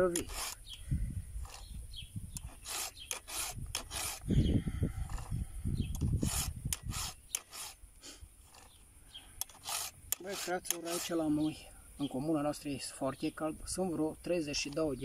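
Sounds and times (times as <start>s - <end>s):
file rasping on chain teeth: 0.0s - 0.7s, 2.4s - 4.3s, 6.0s - 7.8s, 9.4s - 11.6s.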